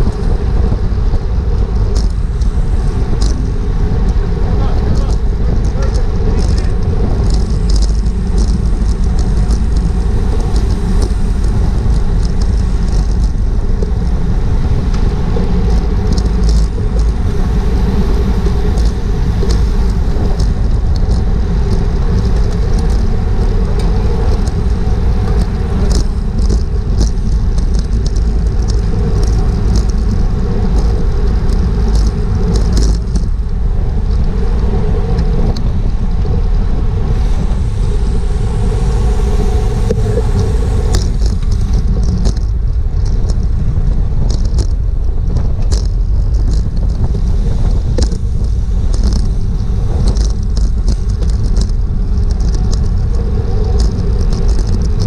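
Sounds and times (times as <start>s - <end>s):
wind rumbling over microphone: 0.0s - 55.0s
clicks and rattles: 40.9s - 47.2s.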